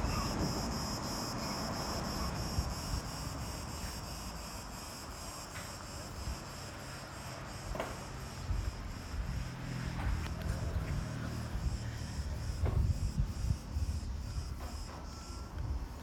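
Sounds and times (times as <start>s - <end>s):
high-pitched insect buzz: 0.0s - 10.4s
wind rumble on microphone: 8.4s - 16.0s.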